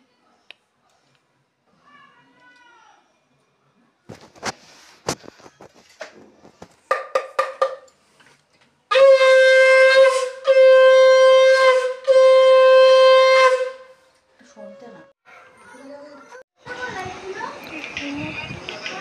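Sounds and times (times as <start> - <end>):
conch shell blasts: 8.9 - 14.0.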